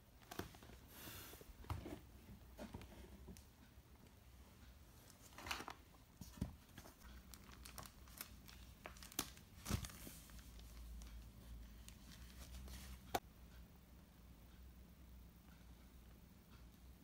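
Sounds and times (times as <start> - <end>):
plastic bag crinkling: 7.2 - 10.7.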